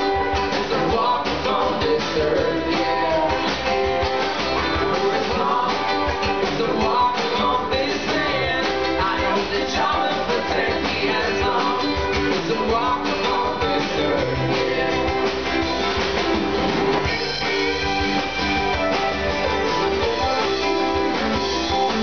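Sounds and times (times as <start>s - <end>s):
drum kit: 0.0s - 22.0s
electric guitars: 0.0s - 22.0s
sliding guitar notes: 11.9s - 22.0s.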